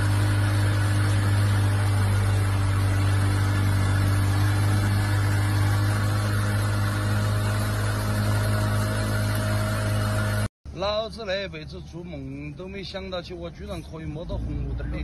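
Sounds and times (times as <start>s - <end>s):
outboard motor droning: 0.0s - 10.5s.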